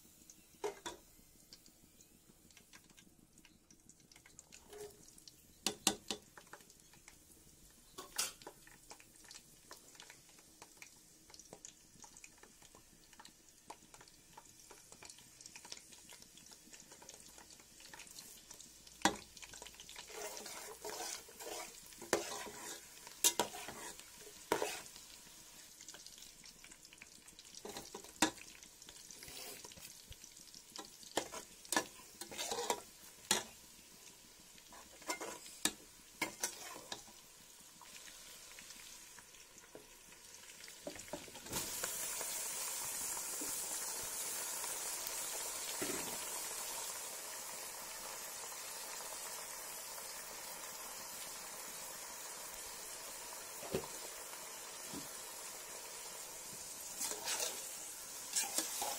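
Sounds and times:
loud sizzling in hot oil: 0:00.0 - 0:58.9
ladle scraping a metal pan: 0:20.1 - 0:24.9, 0:29.2 - 0:29.7, 0:31.2 - 0:33.4, 0:34.7 - 0:35.5, 0:57.0 - 0:58.9.

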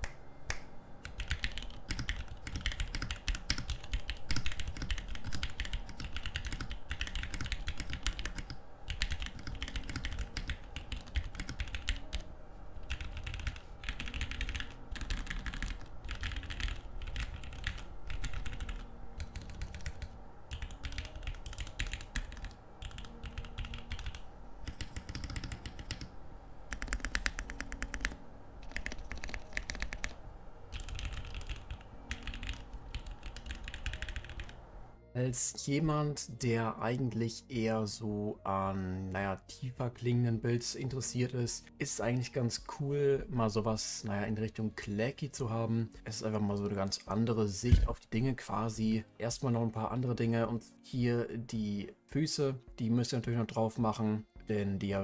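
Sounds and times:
mechanical keyboard typing: 0:01.0 - 0:26.1, 0:26.7 - 0:34.6.

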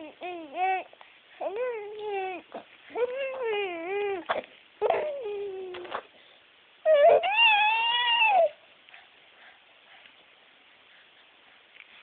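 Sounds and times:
baby making whiny noises: 0:00.0 - 0:06.1, 0:06.8 - 0:08.6.

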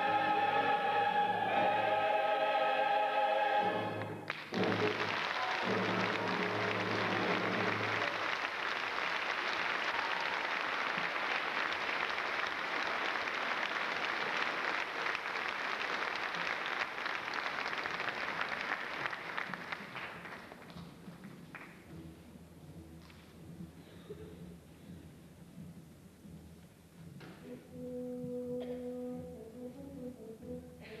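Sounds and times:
choral and orchestral chord: 0:00.0 - 0:04.2
audience applauding: 0:03.9 - 0:20.9.

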